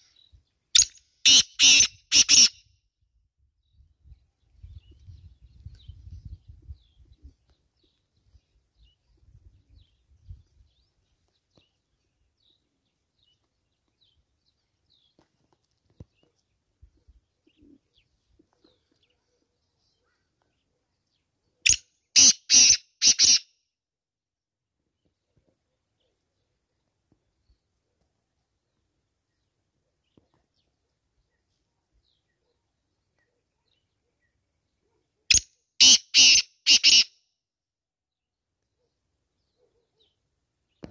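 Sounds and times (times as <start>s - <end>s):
bird calling harsh grating notes: 0.8s - 2.6s, 22.2s - 23.4s, 35.3s - 37.1s.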